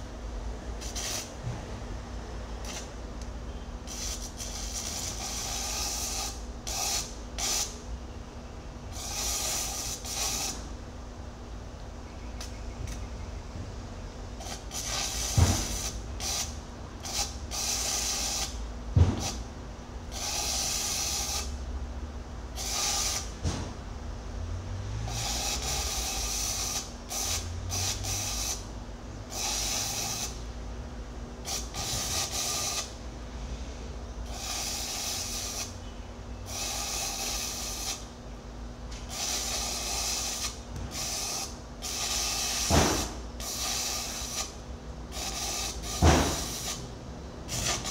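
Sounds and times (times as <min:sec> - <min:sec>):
welding arc crackling and hissing: 0:00.8 - 0:01.4, 0:03.9 - 0:07.8, 0:08.9 - 0:10.7, 0:14.4 - 0:19.5, 0:20.2 - 0:21.6, 0:22.6 - 0:23.4, 0:25.0 - 0:28.7, 0:29.3 - 0:30.5, 0:31.5 - 0:33.0, 0:34.3 - 0:35.8, 0:36.5 - 0:38.1, 0:39.0 - 0:44.6, 0:45.2 - 0:46.9, 0:47.5 - 0:47.9
sharp knocks: 0:42.7 - 0:43.1, 0:46.0 - 0:46.4.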